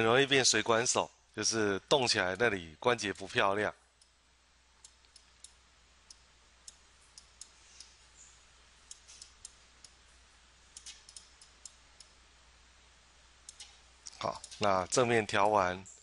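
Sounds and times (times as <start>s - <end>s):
low steady hum: 0.0s - 16.0s
computer mouse clicks: 8.9s - 10.0s, 10.7s - 12.2s, 13.4s - 14.7s.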